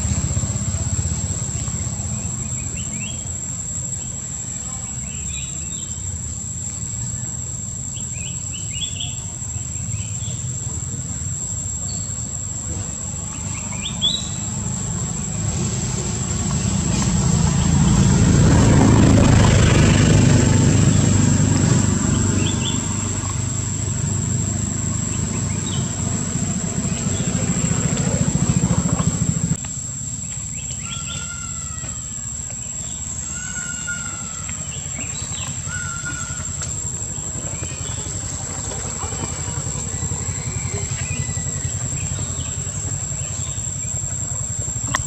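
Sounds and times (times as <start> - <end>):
vehicle engine rumble: 0.0 - 31.2, 31.9 - 45.0
high chirping calls: 13.1 - 15.8.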